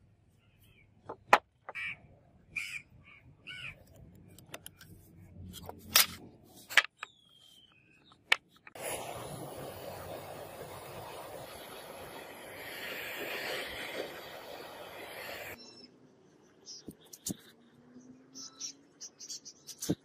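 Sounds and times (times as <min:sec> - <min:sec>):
steady rushing noise: 0:08.8 - 0:15.6.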